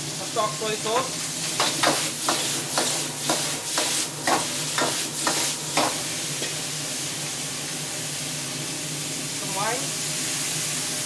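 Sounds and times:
food sizzling: 0:00.0 - 0:11.0.

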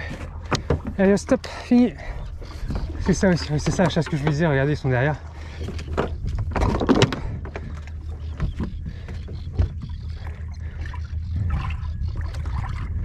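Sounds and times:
boat motor hum: 0:00.0 - 0:13.0
water splashing and lapping: 0:00.0 - 0:13.0.

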